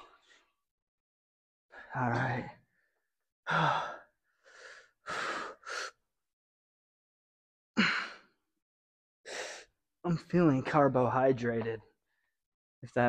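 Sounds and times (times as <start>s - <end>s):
man breathing hard: 3.5s - 6.0s, 9.3s - 9.7s.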